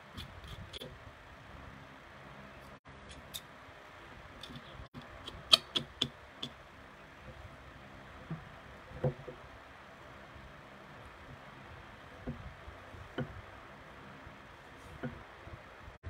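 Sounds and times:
steady low background noise: 0.0 - 16.0.

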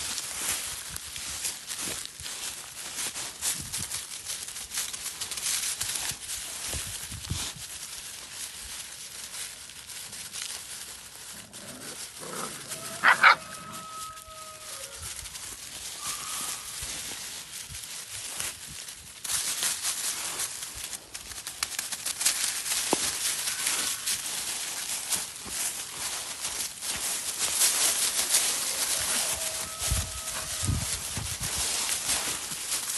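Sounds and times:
dry leaves crunching under paws: 0.0 - 32.9
puppy yelping and whining: 12.3 - 14.8.

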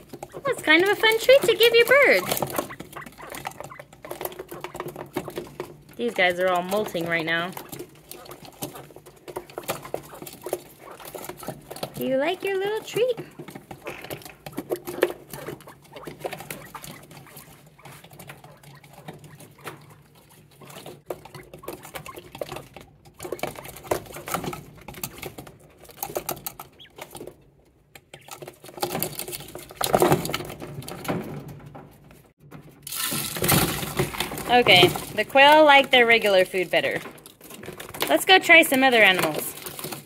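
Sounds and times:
beaks tapping on plastic: 0.0 - 27.3
birds scuffling: 0.0 - 40.0.

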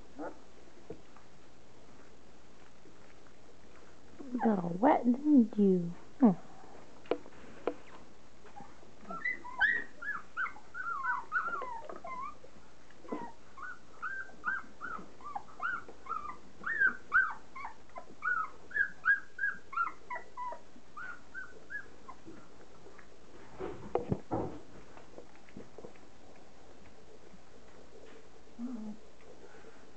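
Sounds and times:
puppies whimpering and squeaking: 7.8 - 23.0.

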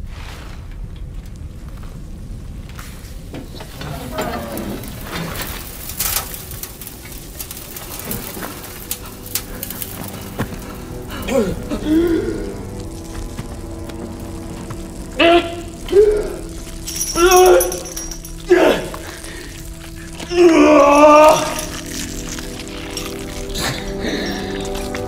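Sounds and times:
low rumble: 0.0 - 25.0
rain falling: 0.0 - 25.0
man gasping in pain: 11.1 - 12.6.

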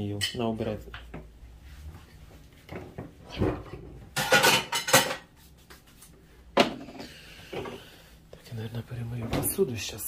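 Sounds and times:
dishes and cutlery clattering: 3.7 - 5.3.

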